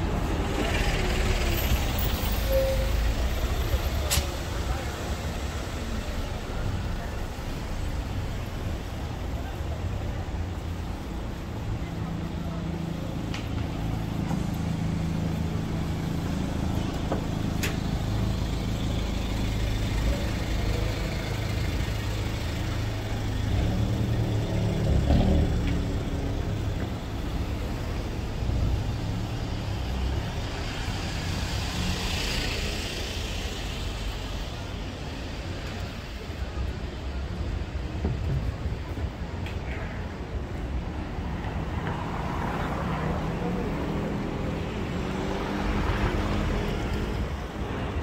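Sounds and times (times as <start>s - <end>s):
passing vehicle hiss: 0.0s - 37.4s
vehicle engines rumbling: 0.0s - 48.0s.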